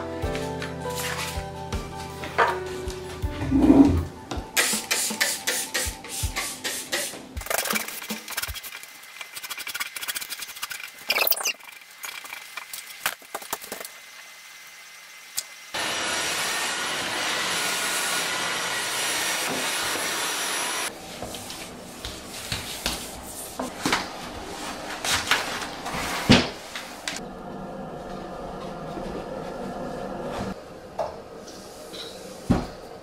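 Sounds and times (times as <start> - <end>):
stick vacuum cleaner running: 15.4 - 20.9.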